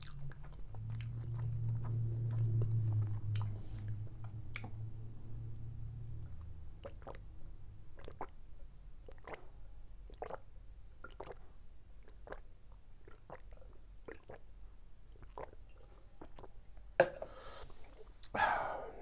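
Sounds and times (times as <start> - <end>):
person gulping a drink: 6.8 - 7.2, 7.9 - 8.4, 9.0 - 14.5, 15.1 - 19.0
breathy exhale: 17.2 - 19.0.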